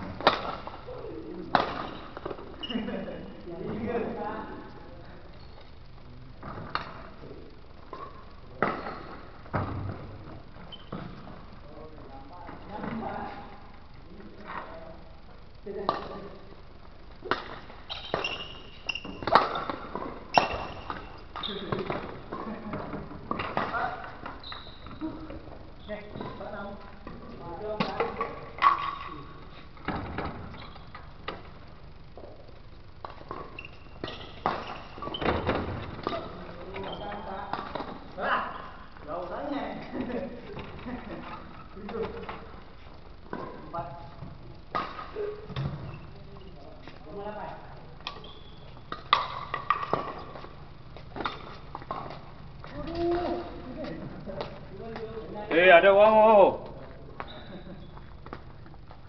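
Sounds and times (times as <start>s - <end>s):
racket hitting shuttlecock: 0.2s - 0.8s.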